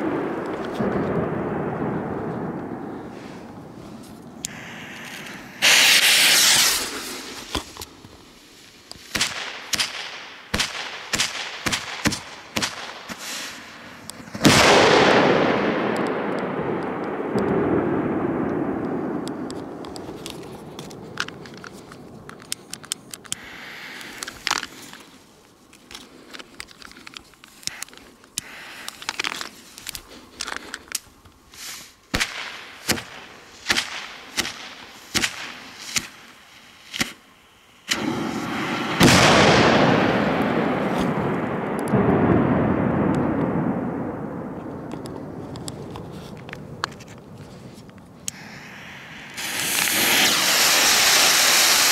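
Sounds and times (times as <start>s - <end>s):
loud firecracker blast: 0.0s - 7.6s, 9.1s - 21.5s, 37.8s - 45.5s, 48.3s - 51.9s
firecracker fuse crackling: 0.0s - 51.9s.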